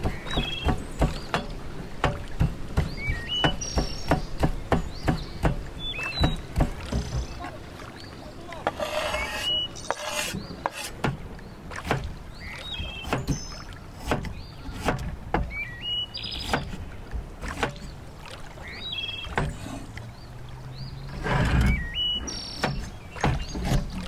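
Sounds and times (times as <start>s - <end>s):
bird whistled chirp: 2.9s - 4.1s, 5.8s - 6.5s, 9.1s - 10.5s, 15.5s - 16.6s, 21.7s - 22.8s.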